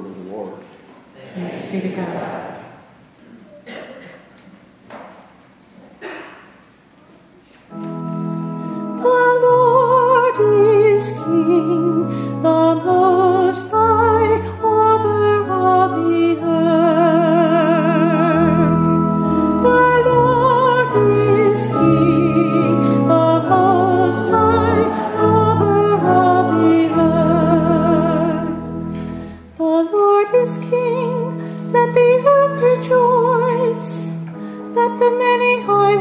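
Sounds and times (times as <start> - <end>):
sustained organ chords: 7.7 - 36.0
person singing with vibrato: 8.6 - 36.0.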